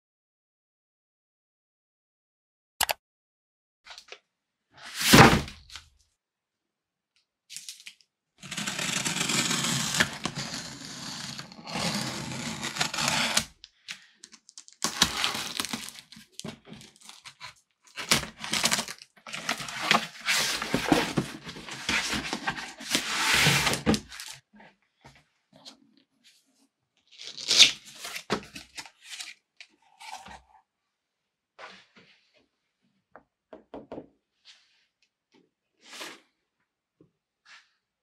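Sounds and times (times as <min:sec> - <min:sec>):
packing tape ripping: 0:14.7 - 0:16.2, 0:18.0 - 0:20.8, 0:27.1 - 0:28.2
cardboard flaps rustling and knocking: 0:19.9 - 0:24.1.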